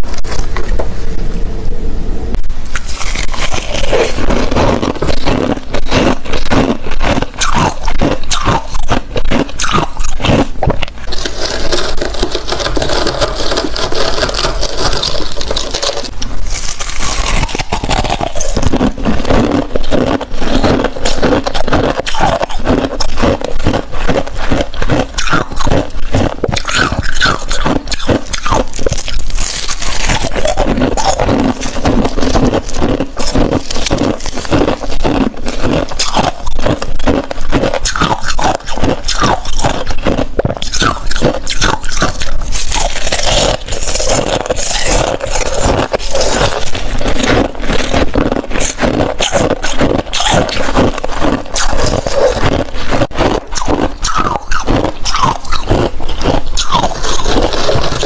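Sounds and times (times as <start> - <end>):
frost crunching: 0.0 - 58.0
gloved hands scraping frost: 11.0 - 19.4.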